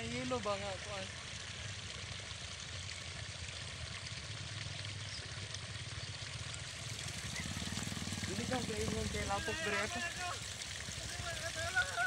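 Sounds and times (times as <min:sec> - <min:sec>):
motorcycle engine: 0:05.8 - 0:11.3
steady rushing hiss: 0:05.8 - 0:12.0.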